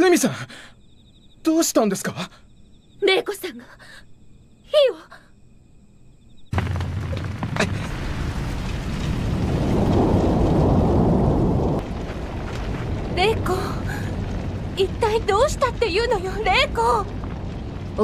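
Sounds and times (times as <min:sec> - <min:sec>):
large fire burning: 0:06.5 - 0:18.0.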